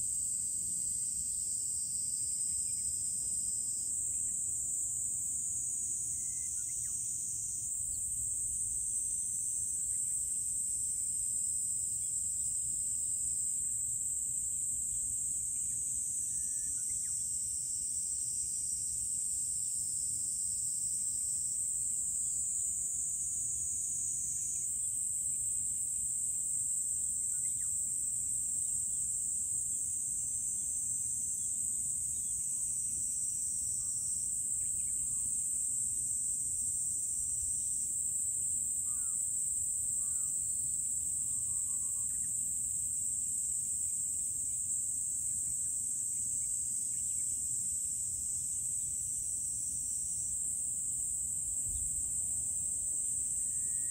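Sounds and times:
cicadas buzzing: 0.0 - 53.9.

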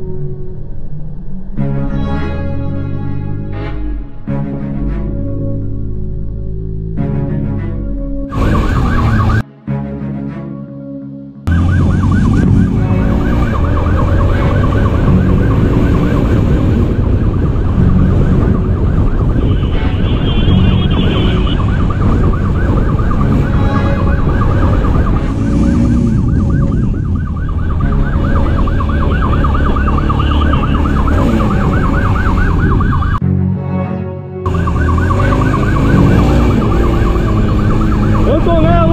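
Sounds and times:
siren yelping: 8.3 - 9.4, 11.5 - 33.2, 34.5 - 38.9
motorcycle engine and wind rumble: 11.7 - 33.2.

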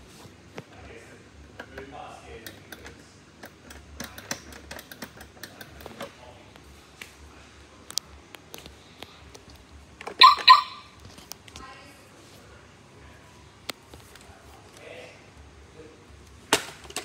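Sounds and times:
robot vacuum electronic beeps: 10.2 - 10.8.

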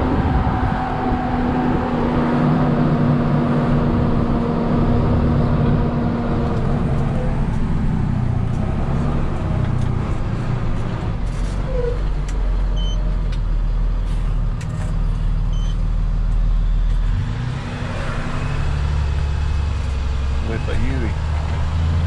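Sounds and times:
road noise: 0.0 - 22.0
truck engine running: 2.0 - 17.2.

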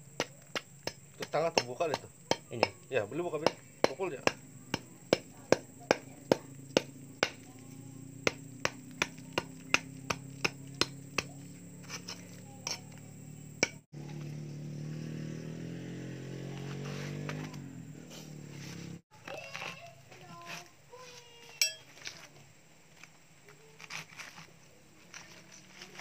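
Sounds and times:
hammer striking concrete: 0.1 - 11.4.

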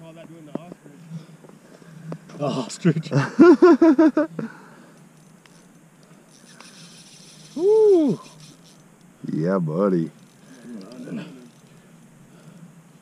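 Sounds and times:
man laughing: 2.5 - 4.5, 7.6 - 8.3
drawn-out vocal ooh: 7.5 - 8.4.

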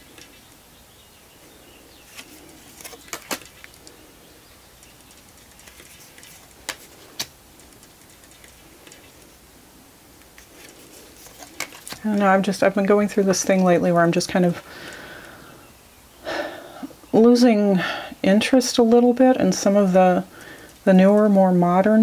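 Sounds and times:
faint room hiss: 0.0 - 22.0
cards clicking: 2.1 - 4.0, 4.8 - 9.3, 10.2 - 12.2.

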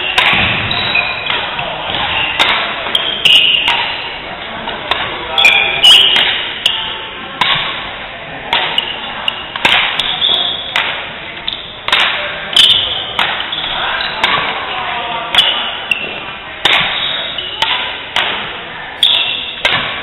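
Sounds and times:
shoe squeaks: 0.0 - 1.4, 2.1 - 4.2, 5.4 - 7.0, 8.8 - 10.7, 12.6 - 14.2, 15.5 - 16.2, 16.9 - 17.6, 19.0 - 19.6
racquets striking shuttlecock: 0.0 - 4.1, 4.7 - 7.9, 8.5 - 14.6, 15.3 - 20.0.

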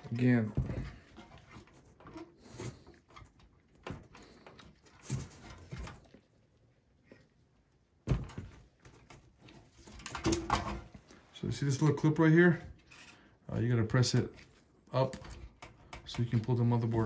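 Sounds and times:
hands handling computer parts: 8.0 - 13.2.

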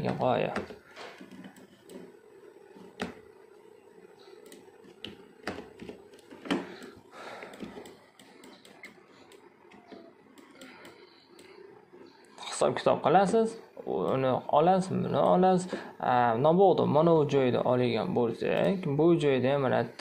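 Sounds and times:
faint steady hum: 0.0 - 20.0
computer mouse clicks: 0.1 - 3.3, 4.2 - 12.4.

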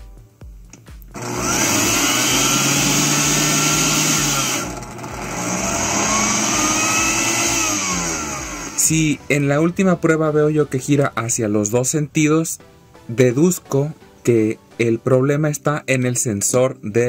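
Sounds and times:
blender motor whining: 1.1 - 9.3.

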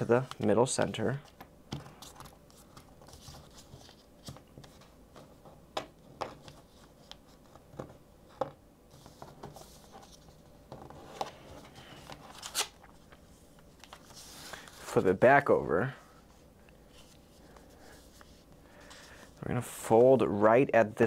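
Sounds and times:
paper rustling and sliding: 8.9 - 15.2.

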